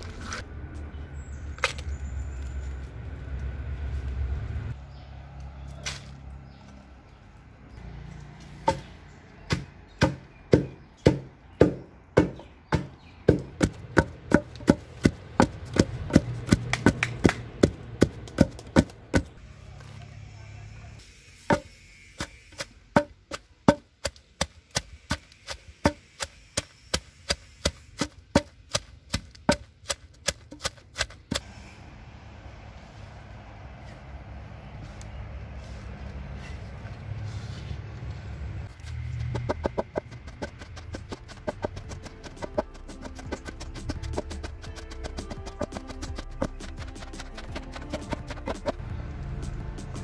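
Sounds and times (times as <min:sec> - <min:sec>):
pestle pounding in mortar: 0:09.5 - 0:19.3, 0:21.5 - 0:31.4, 0:39.2 - 0:48.8.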